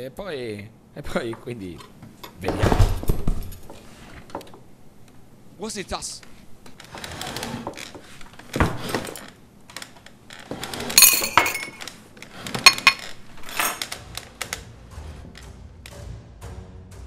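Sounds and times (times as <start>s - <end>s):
glassware and cutlery clinking: 10.9s - 11.9s, 12.6s - 13.8s
sharp ringing glass clinks: 11.0s - 11.8s.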